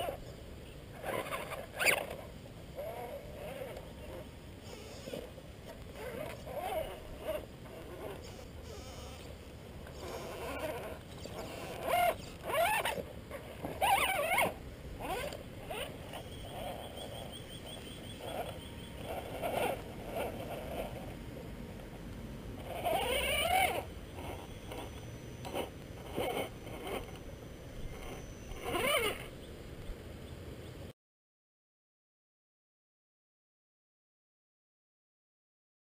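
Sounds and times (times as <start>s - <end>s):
electric motor and gears whining: 1.0s - 29.3s.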